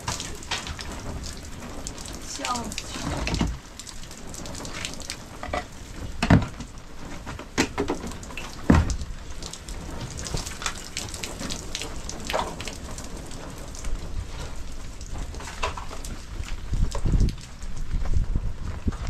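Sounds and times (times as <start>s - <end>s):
rain falling: 0.0s - 19.0s
loud thumps: 7.5s - 9.1s.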